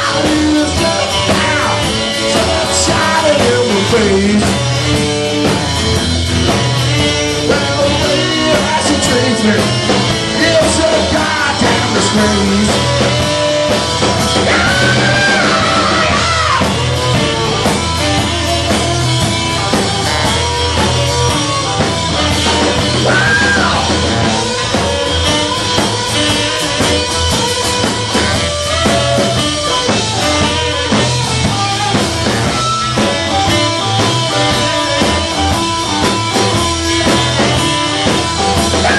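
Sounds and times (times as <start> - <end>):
person singing: 0.0 - 4.8, 7.3 - 13.8, 14.4 - 16.9, 22.4 - 27.2, 33.0 - 38.9
drums: 0.0 - 38.9
electric guitar: 0.0 - 38.9
saxophone: 0.0 - 38.9.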